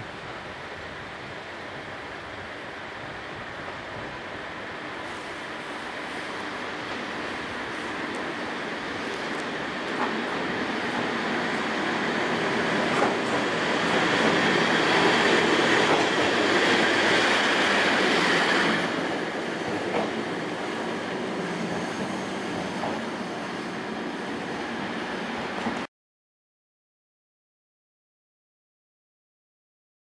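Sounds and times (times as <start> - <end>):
locomotive wheels rumbling on rails: 3.4 - 25.8
rail-joint clicks: 7.8 - 11.4, 12.4 - 16.8, 19.6 - 20.4, 21.6 - 23.1.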